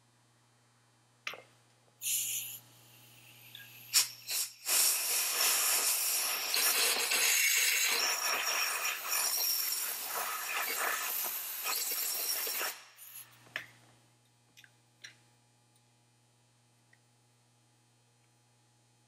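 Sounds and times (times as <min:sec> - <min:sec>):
compressed air blow gun hissing: 0:02.0 - 0:02.6, 0:03.8 - 0:11.7.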